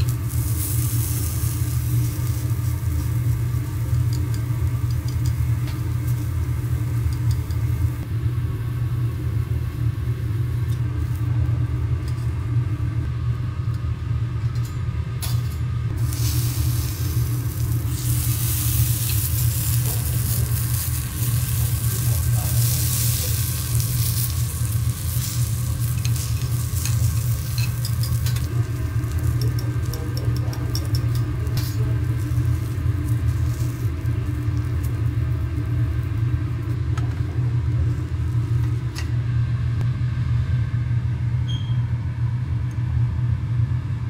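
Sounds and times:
vegetables sizzling on a griddle: 0.0 - 8.0, 16.0 - 30.2, 31.5 - 35.8.

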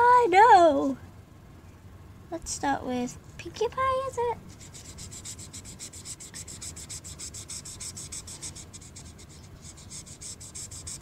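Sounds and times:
marker scribbling on paper: 4.5 - 11.0.

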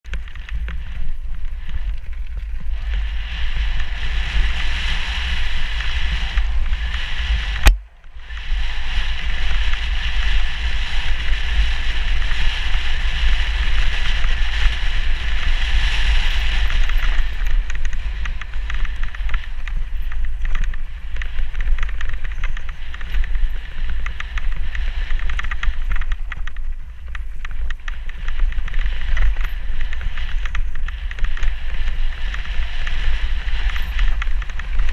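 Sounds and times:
wind buffeting microphone: 0.0 - 34.9
tyres rolling over gravel: 0.1 - 34.9.

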